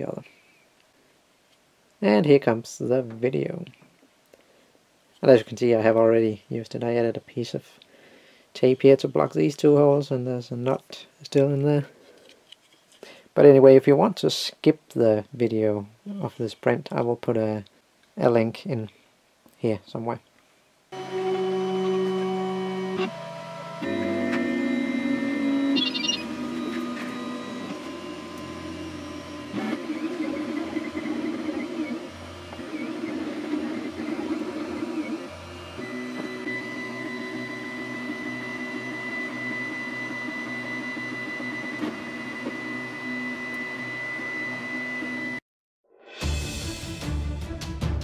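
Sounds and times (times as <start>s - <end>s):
steady high whine: 21.0s - 36.6s
printer stepper motors whirring: 21.0s - 45.4s
music: 45.9s - 48.0s.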